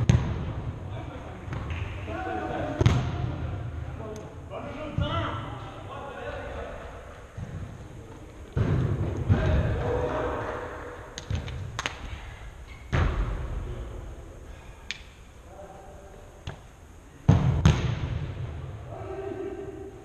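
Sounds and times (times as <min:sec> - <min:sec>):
football thudding against boards: 0:17.3 - 0:18.1.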